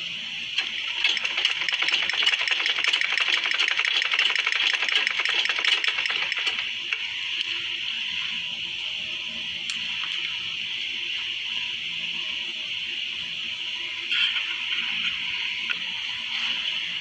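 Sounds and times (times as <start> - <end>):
sewing machine stitching: 0.9 - 6.6.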